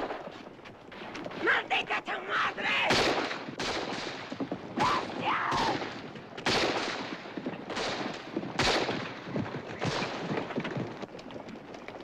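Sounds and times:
echoing gunshots: 2.8 - 10.3.

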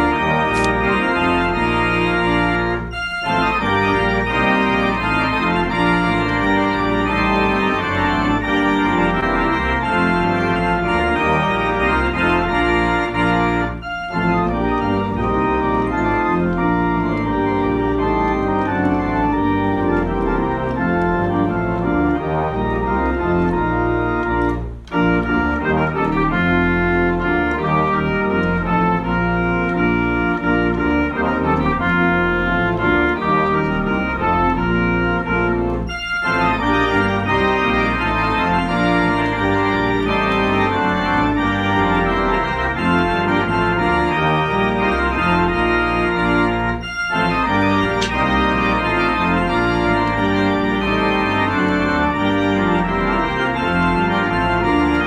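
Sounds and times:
cinema organ playing carol: 0.0 - 55.0.

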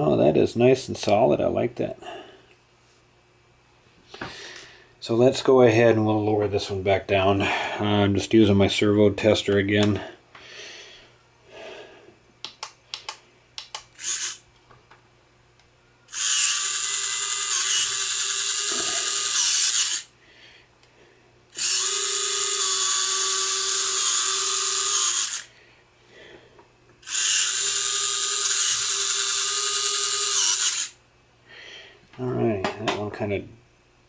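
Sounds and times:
small electric motor whining: 14.0 - 14.4, 16.1 - 20.1, 21.5 - 25.5, 27.0 - 31.0.

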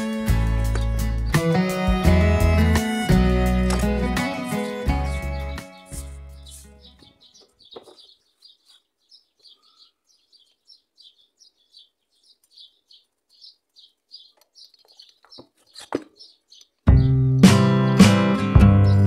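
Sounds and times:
faint bird chirping: 4.6 - 17.2.

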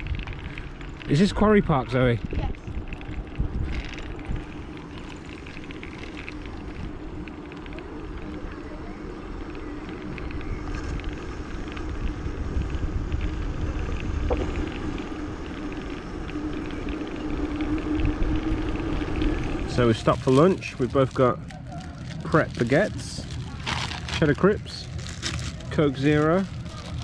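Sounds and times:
bicycle rumble on paved path: 0.0 - 27.0
steady low hum: 0.0 - 27.0
wind buffeting microphone: 0.0 - 27.0.

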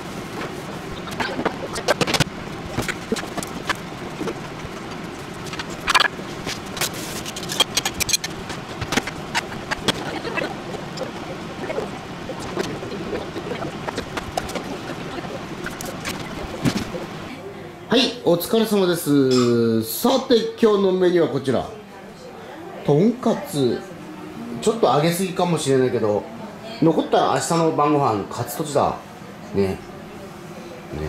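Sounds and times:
steady rushing background noise: 0.0 - 17.4.

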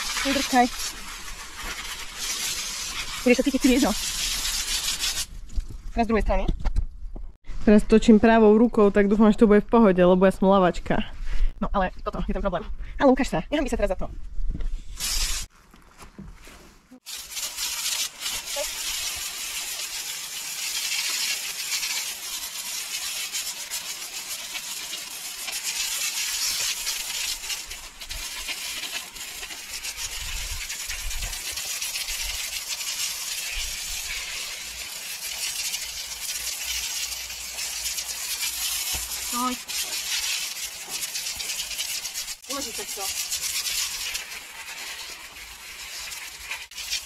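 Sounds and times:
water spraying from a hose: 0.0 - 5.4, 14.9 - 15.5, 16.9 - 47.0.

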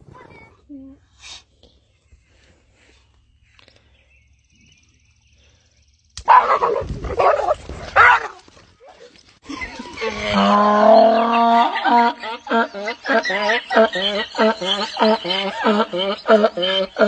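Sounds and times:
dog yelping and barking: 6.3 - 9.1.

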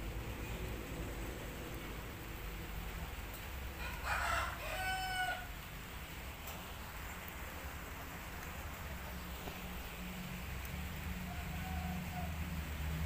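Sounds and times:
rooster crowing: 3.8 - 5.6, 11.1 - 12.6.

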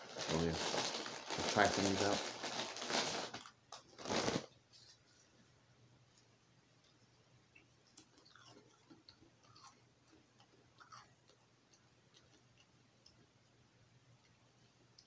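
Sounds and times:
crunching and chewing cracker: 7.9 - 13.2.

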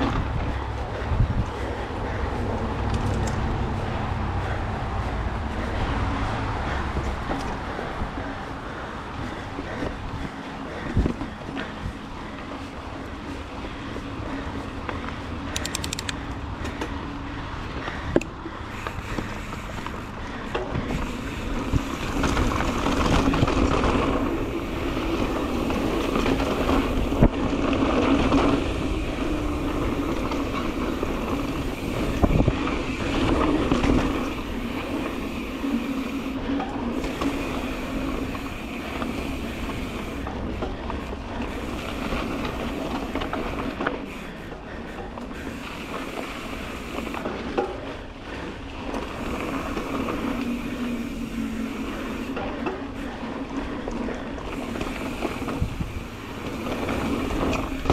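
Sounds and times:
bike tyre and drivetrain rattle: 0.0 - 57.9.

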